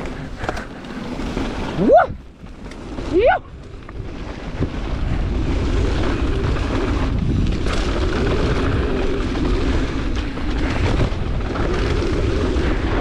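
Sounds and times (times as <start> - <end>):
bike tyre rumble: 0.0 - 13.0
wind buffeting microphone: 0.0 - 13.0.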